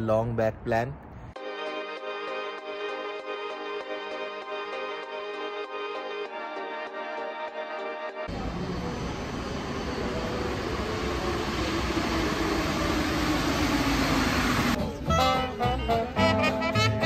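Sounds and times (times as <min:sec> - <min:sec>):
music: 0:01.4 - 0:08.3, 0:14.8 - 0:17.0
train pulling into station: 0:01.4 - 0:15.6.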